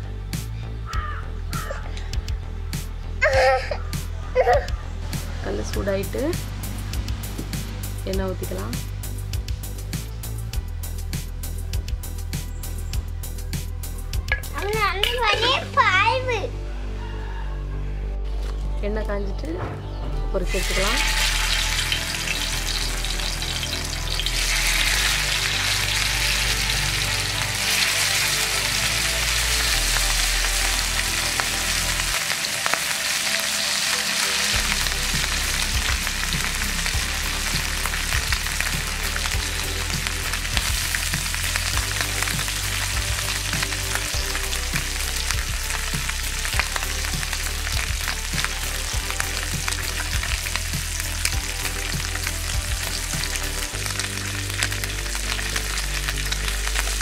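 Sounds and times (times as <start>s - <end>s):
fish sizzling in hot oil: 20.5s - 57.0s.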